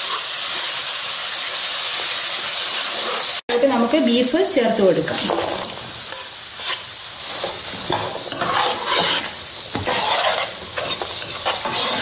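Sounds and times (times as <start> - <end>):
frying sizzle: 0.0 - 12.0
spatula scraping a pan: 2.8 - 3.7, 5.2 - 12.0.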